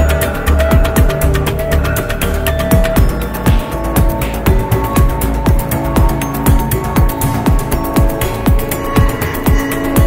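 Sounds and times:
electronic music: 0:00.0 - 0:10.0.

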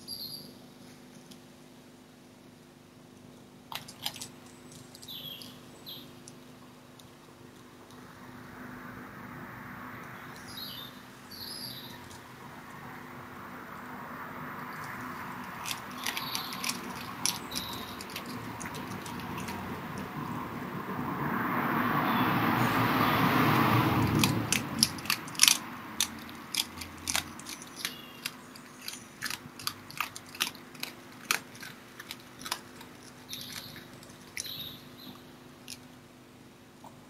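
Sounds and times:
faint bird chirps: 0:00.0 - 0:00.6, 0:04.9 - 0:06.2, 0:33.3 - 0:35.3
fox crunching meat: 0:03.1 - 0:08.1, 0:14.8 - 0:20.4, 0:23.5 - 0:36.1.

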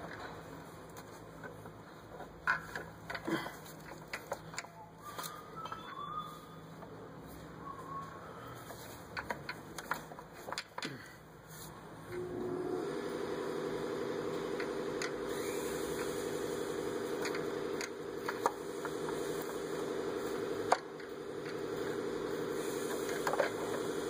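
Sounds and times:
small motor humming: 0:12.0 - 0:24.0.

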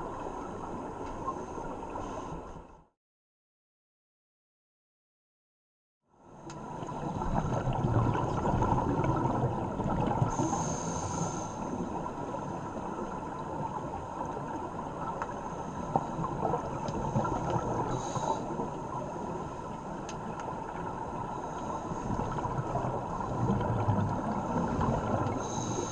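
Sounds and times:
underwater bubbles gurgling: 0:06.4 - 0:25.9
regulator inhalation hiss: 0:10.3 - 0:11.7.

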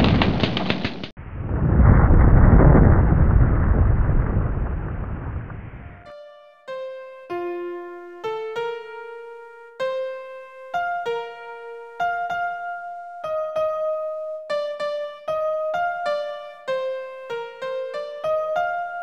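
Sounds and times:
keyboard melody: 0:06.0 - 0:19.0.

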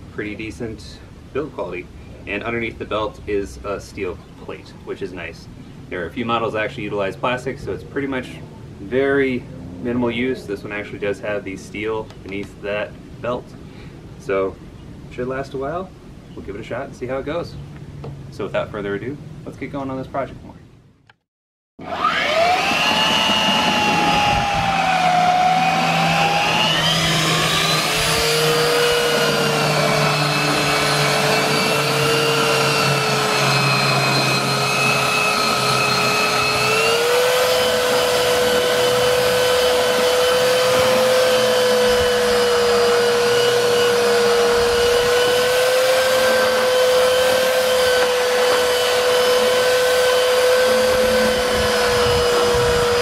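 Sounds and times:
belt sander whining: 0:21.8 - 0:53.0.

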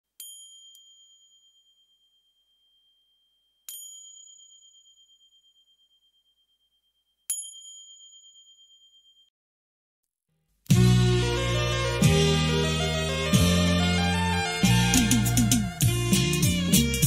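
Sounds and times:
high bell-like ding: 0:00.2 - 0:09.3.

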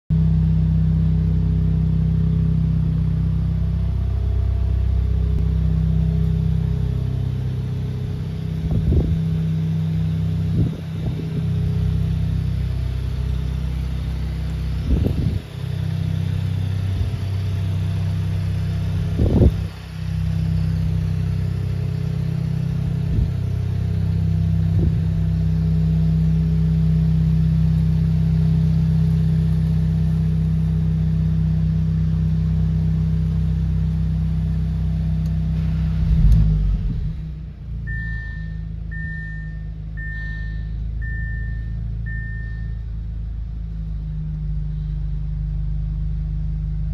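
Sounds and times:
car engine idling: 0:00.1 - 0:46.9
sharp exhaust bursts: 0:03.1 - 0:30.4.

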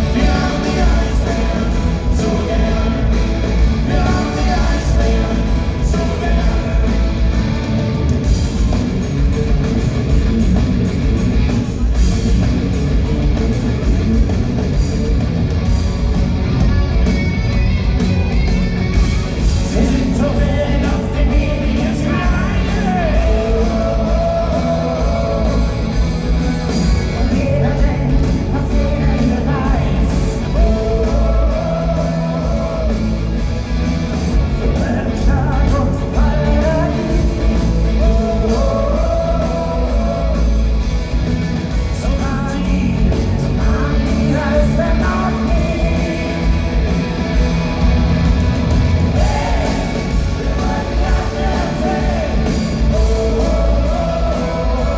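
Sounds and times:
lead vocal singing: 0:00.0 - 0:07.6, 0:19.6 - 0:41.0, 0:41.8 - 0:47.9, 0:48.7 - 0:54.9
live rock band: 0:00.0 - 0:54.9.

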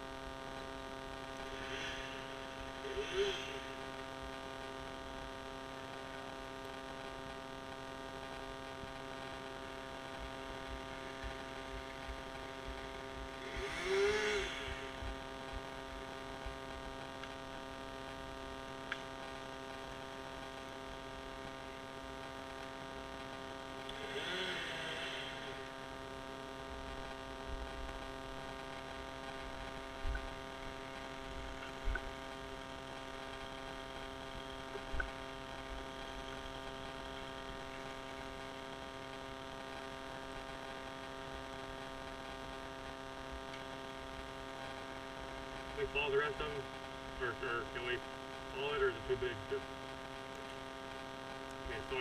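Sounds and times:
small engine running: 0:00.4 - 0:05.2, 0:08.2 - 0:16.4, 0:23.2 - 0:26.1
distant voice calling out: 0:45.8 - 0:49.7, 0:51.6 - 0:52.0.

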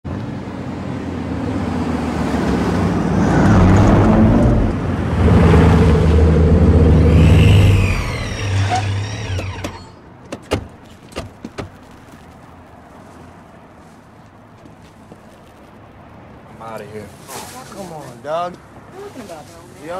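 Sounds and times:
sports car engines: 0:00.1 - 0:17.3
tire squeals: 0:03.2 - 0:10.0.

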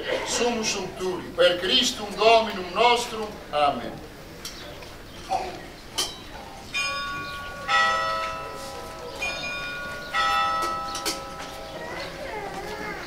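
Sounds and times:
church bells ringing: 0:06.1 - 0:12.6.

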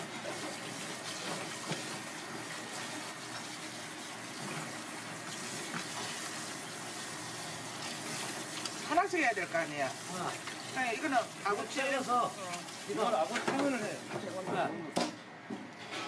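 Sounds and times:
tap water splashing on fish: 0:12.4 - 0:14.2.

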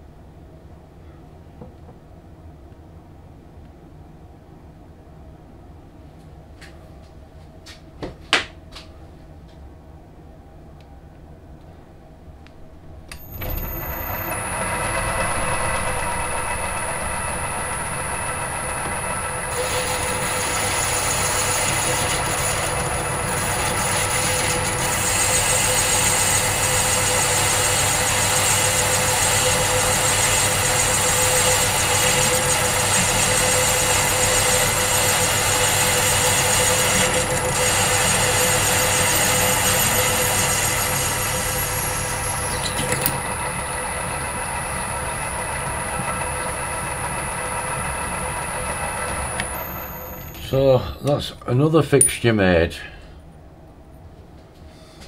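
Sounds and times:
metal lathe motor whining: 0:13.1 - 0:50.6
tool cutting spinning metal: 0:13.1 - 0:50.6.

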